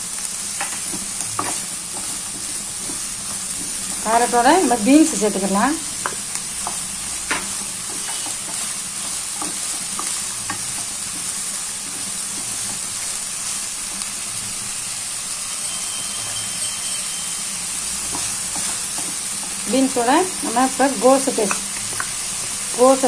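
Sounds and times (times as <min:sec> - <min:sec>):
vegetables sizzling in oil: 0:00.0 - 0:23.0
spatula scraping and tapping pan: 0:00.6 - 0:05.2, 0:06.0 - 0:12.9, 0:18.0 - 0:19.7, 0:21.3 - 0:22.2.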